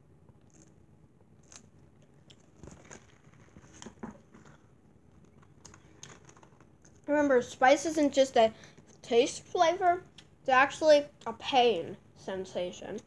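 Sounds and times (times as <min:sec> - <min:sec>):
soft clicks and crunches: 0:00.3 - 0:07.1
person chewing: 0:00.4 - 0:03.8.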